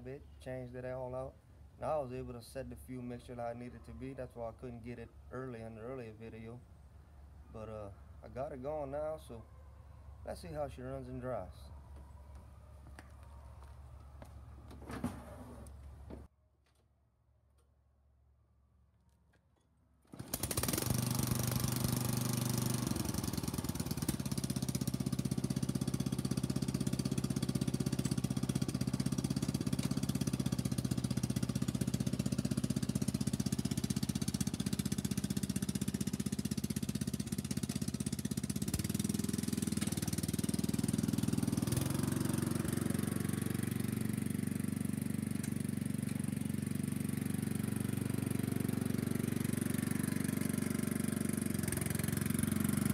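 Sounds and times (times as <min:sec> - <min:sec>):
riding mower engine running: 0:20.1 - 0:52.9.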